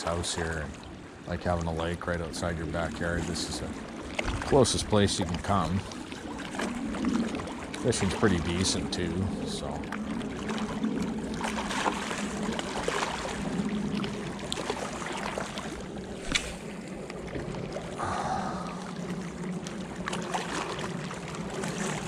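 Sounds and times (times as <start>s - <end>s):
waves lapping on rocky shore: 0.0s - 22.0s
wind rumbling on microphone: 0.7s - 22.0s
sharp click: 16.2s - 16.6s.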